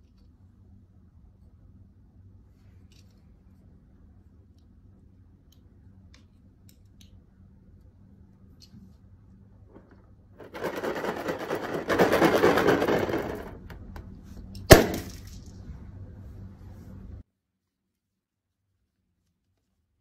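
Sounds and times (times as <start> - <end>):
balloon popping: 14.7 - 15.3.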